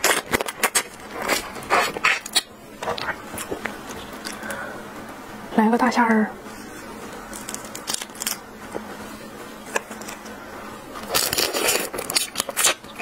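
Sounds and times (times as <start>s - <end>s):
wet chewing: 11.0s - 13.0s.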